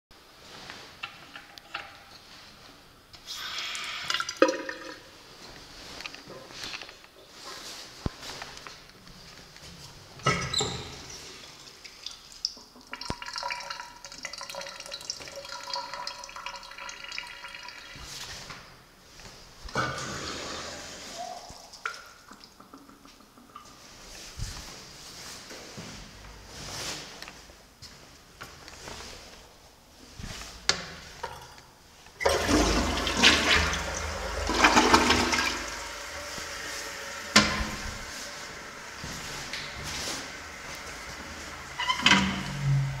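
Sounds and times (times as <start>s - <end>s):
toilet tank refilling: 3.2s - 5.4s, 10.2s - 18.5s, 19.7s - 24.1s, 30.7s - 43.0s
urinal flushing: 3.2s - 6.0s, 10.2s - 18.6s, 19.7s - 24.3s, 30.4s - 43.0s
water running into drain: 10.3s - 18.2s, 32.2s - 43.0s.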